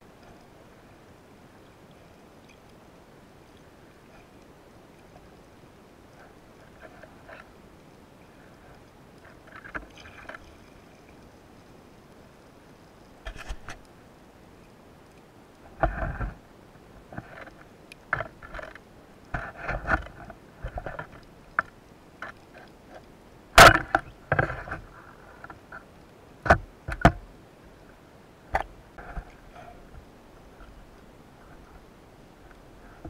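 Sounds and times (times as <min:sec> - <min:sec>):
underwater knocks and clicks of gear: 0:09.2 - 0:10.7, 0:15.6 - 0:16.4, 0:17.0 - 0:27.3, 0:28.5 - 0:31.0.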